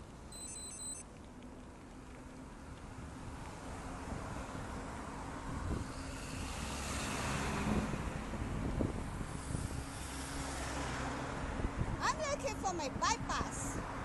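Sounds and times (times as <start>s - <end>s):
wind noise on microphone: 2.8s - 14.0s
vehicle passing: 3.3s - 14.0s.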